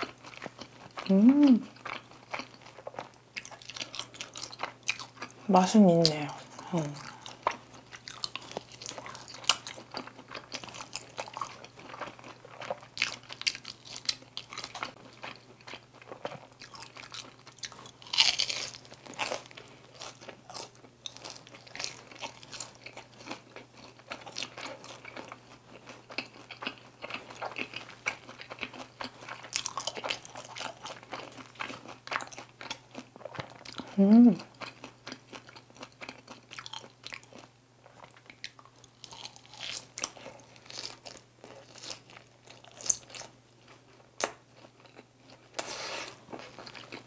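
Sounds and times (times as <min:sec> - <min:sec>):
chewing and crunching fried chicken: 0:00.0 - 0:47.0.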